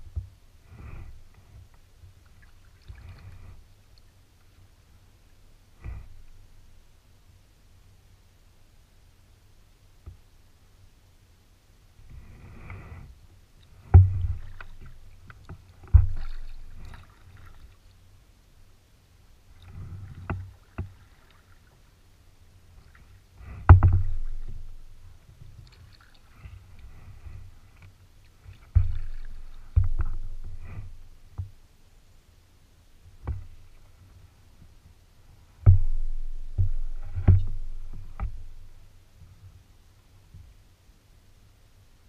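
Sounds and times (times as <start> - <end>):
paddle splashing and dripping: 13.6 - 18.0, 19.5 - 22.0, 22.7 - 31.4
paddle knocking on kayak hull: 23.7 - 24.6.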